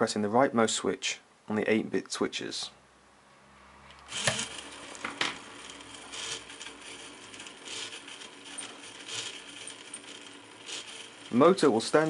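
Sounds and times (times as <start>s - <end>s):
small motors whirring and grinding: 4.1s - 12.0s.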